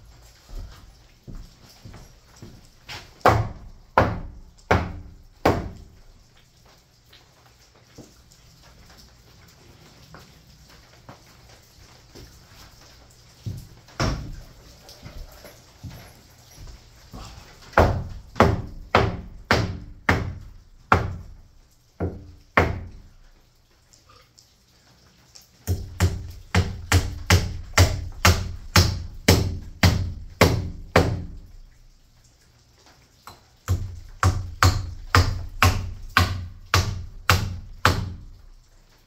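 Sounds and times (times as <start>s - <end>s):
hammer striking wood: 3.2s - 5.8s, 14.0s - 14.4s, 17.8s - 21.2s, 25.7s - 31.4s, 33.7s - 38.2s.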